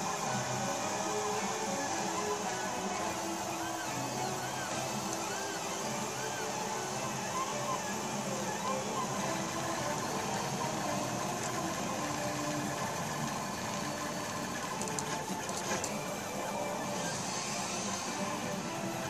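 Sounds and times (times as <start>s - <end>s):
stepper motors whining: 0.0s - 19.0s.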